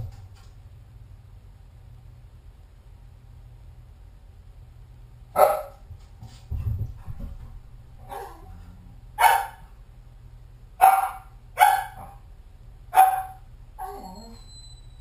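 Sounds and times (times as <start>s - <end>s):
dog barking: 5.4s - 5.8s, 8.1s - 8.5s, 9.2s - 9.7s, 10.8s - 12.2s, 12.9s - 14.1s.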